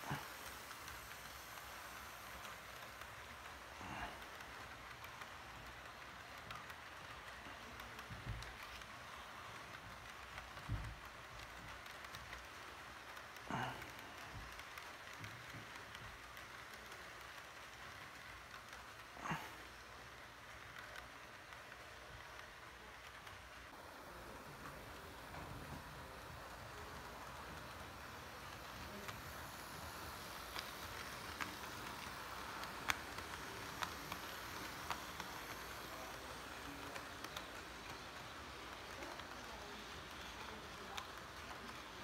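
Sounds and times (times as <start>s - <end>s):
model train rumble: 0.0s - 42.0s
wheels clicking on rails: 0.0s - 42.0s
wheels clicking over rails: 23.1s - 42.0s.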